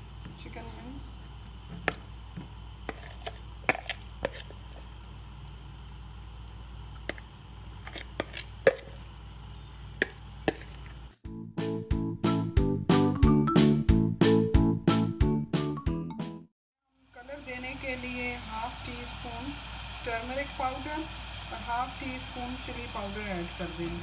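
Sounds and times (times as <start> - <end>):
piano music: 11.3 - 16.5.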